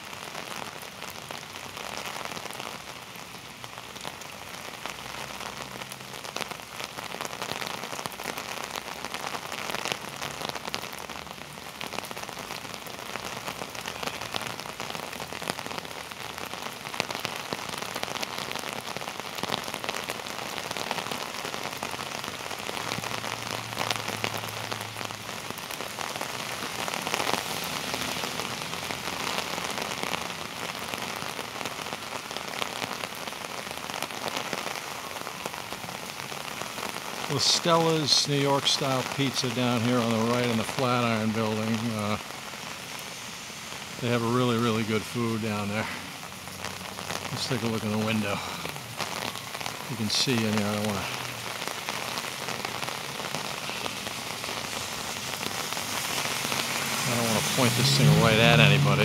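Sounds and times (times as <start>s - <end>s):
heavy rain: 0.0s - 59.0s
raindrops hitting near microphone: 0.0s - 59.0s.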